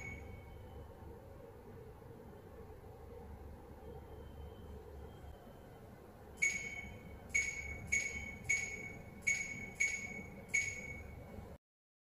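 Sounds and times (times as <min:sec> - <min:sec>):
high electronic chime: 0:06.4 - 0:11.2.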